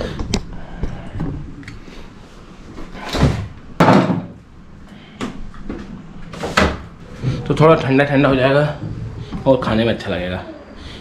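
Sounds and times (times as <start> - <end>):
refrigerator door bumps: 3.2 - 4.4.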